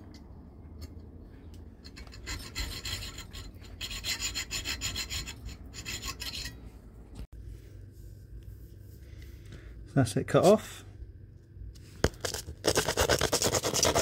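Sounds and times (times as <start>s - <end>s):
hacksaw cutting metal tube: 1.9s - 6.6s, 12.6s - 14.0s.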